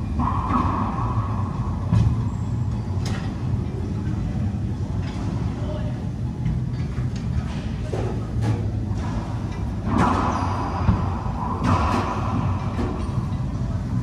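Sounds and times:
steady low hum: 0:00.0 - 0:14.0
racquetball hits off racquets and walls: 0:09.9 - 0:12.4.

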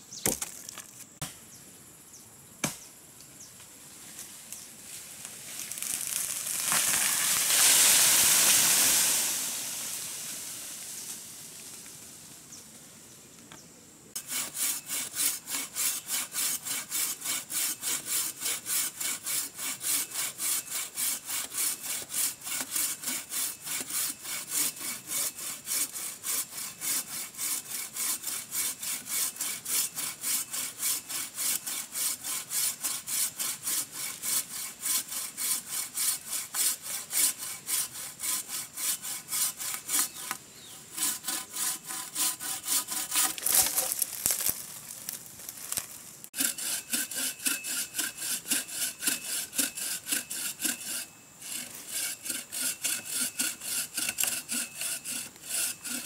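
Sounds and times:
bow saw cutting wood: 0:05.7 - 0:11.1, 0:14.2 - 0:44.6, 0:45.5 - 0:56.0.

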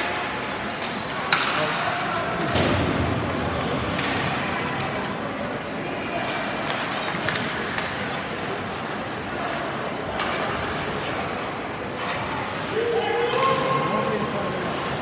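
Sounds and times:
skates on ice rink: 0:00.0 - 0:15.0
hockey sticks knocking puck: 0:00.8 - 0:01.9, 0:02.5 - 0:05.2, 0:06.2 - 0:10.8.

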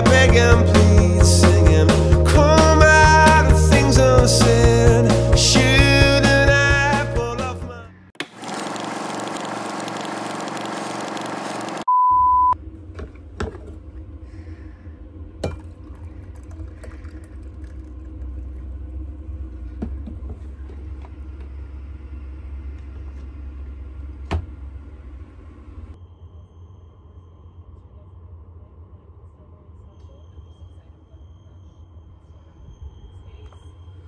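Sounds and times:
low steady hum: 0:11.7 - 0:34.0
short electronic beep: 0:11.9 - 0:12.6.

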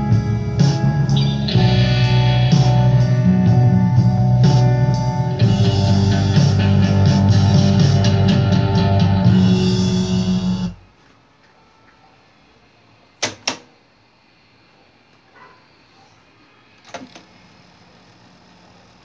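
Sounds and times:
music from cassette tape: 0:00.0 - 0:10.8.

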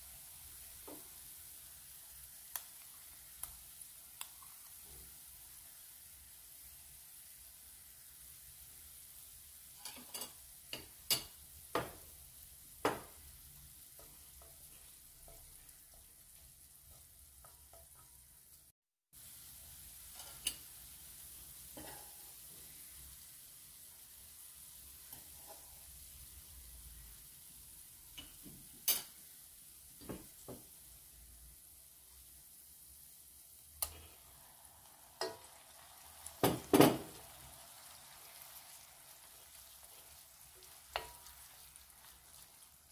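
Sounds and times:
onions sizzling in oil: 0:00.0 - 0:42.9.

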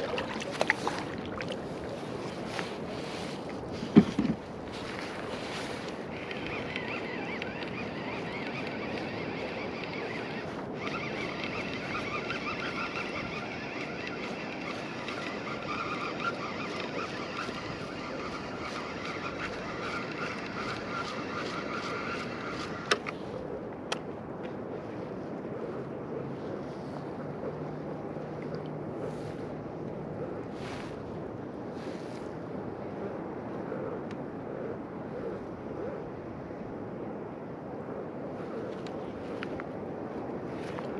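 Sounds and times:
fishing reel whining: 0:04.9 - 0:23.1.

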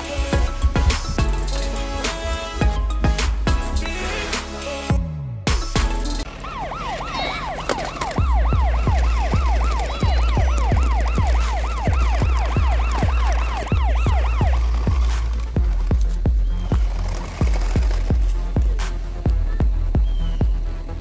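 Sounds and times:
music with heavy bass beat: 0:00.0 - 0:06.3, 0:08.2 - 0:21.0
police siren yelping: 0:06.2 - 0:15.6.

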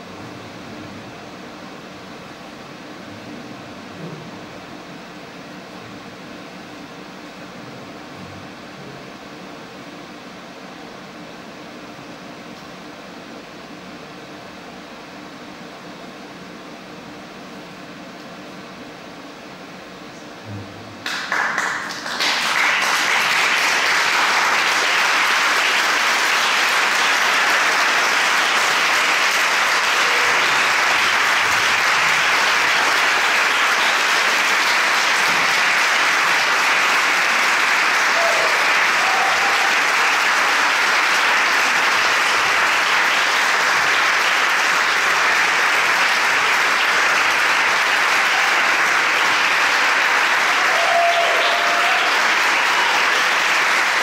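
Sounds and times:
audience applauding: 0:21.0 - 0:54.0.

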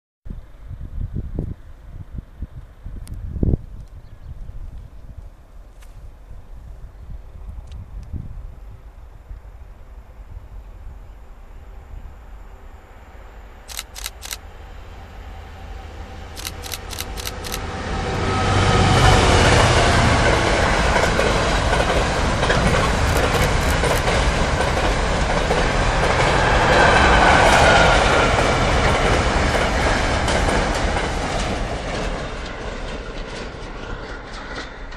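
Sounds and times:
diesel locomotive passing: 0:09.6 - 0:34.9
freight wagons rumbling over track: 0:16.3 - 0:34.9.

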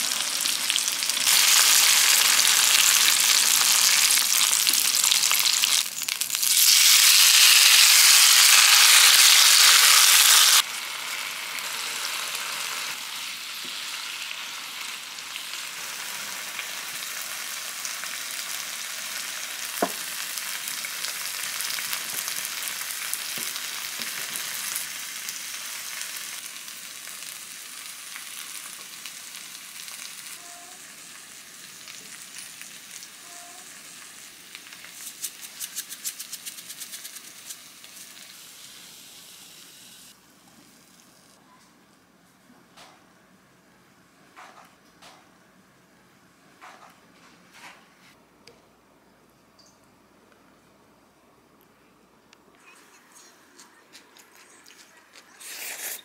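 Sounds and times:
onion sizzling in oil: 0:00.0 - 0:41.4.

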